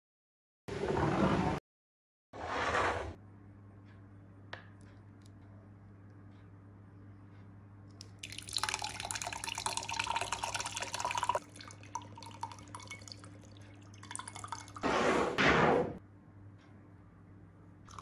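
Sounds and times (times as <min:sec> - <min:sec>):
milk pouring into glass: 0:08.1 - 0:14.8.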